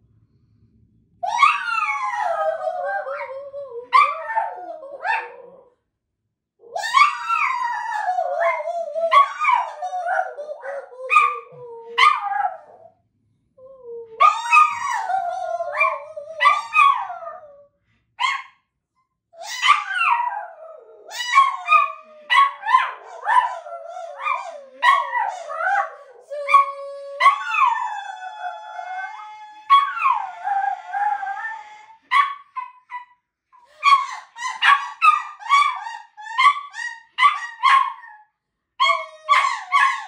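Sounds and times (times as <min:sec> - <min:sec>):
small dog howling: 0:01.2 - 0:05.7, 0:06.6 - 0:12.9, 0:13.6 - 0:17.5, 0:19.4 - 0:33.0, 0:33.8 - 0:38.2, 0:38.8 - 0:40.0
dog yipping: 0:14.2 - 0:17.1, 0:18.2 - 0:18.6, 0:19.4 - 0:20.5, 0:21.1 - 0:25.9, 0:29.1 - 0:30.9, 0:31.5 - 0:33.2, 0:33.8 - 0:38.2, 0:38.8 - 0:40.0.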